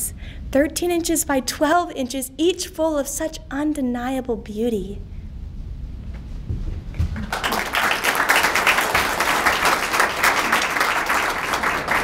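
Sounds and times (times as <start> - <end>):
audience applauding: 7.2 - 12.0.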